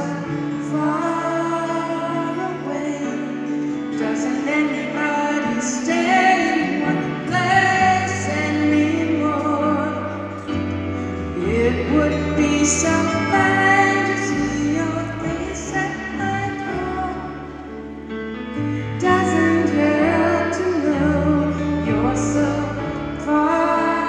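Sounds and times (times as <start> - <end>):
acoustic guitar: 0.0 - 24.0
woman singing a slow ballad: 0.0 - 24.0
bass: 6.2 - 24.0.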